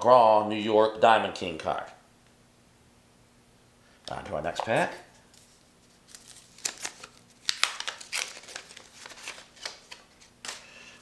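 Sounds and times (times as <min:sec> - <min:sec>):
wax paper wrapper crinkling: 0:05.2 - 0:10.7.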